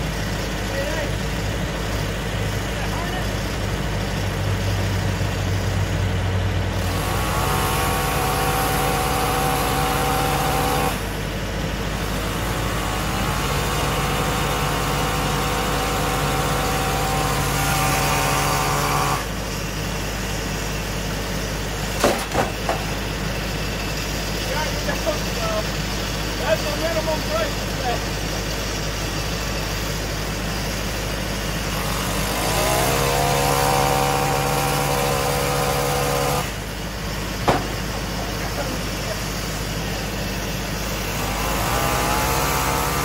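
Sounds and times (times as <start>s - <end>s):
engine running and revving: 0.0s - 25.6s, 28.6s - 43.0s
sharp knocks: 37.4s - 37.9s.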